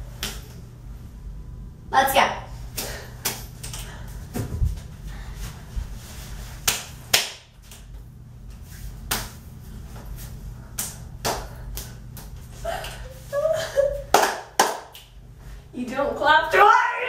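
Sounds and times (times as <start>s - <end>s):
low steady hum: 0.0s - 17.0s
hands clapping and slapping: 0.2s - 0.6s, 2.8s - 3.9s, 6.6s - 8.0s, 9.0s - 9.4s, 10.8s - 13.0s, 14.0s - 15.2s.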